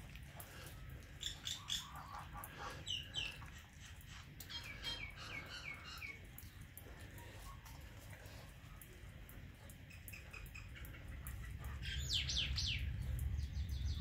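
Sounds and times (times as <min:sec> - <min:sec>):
bird chirping: 0:09.6 - 0:14.0.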